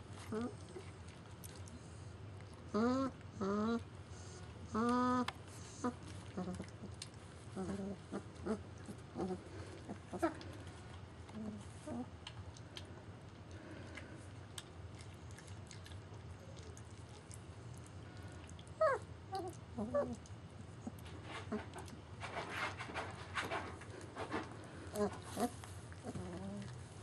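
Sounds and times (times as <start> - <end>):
puppies yipping and grunting: 2.6 - 12.8, 18.0 - 27.0.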